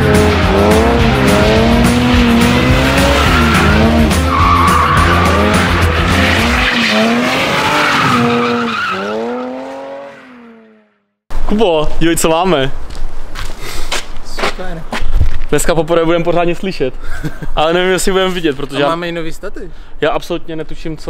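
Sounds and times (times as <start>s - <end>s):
music with a steady beat: 0.0s - 6.3s
car engine revving: 0.0s - 11.0s
tyres squealing: 0.2s - 9.6s.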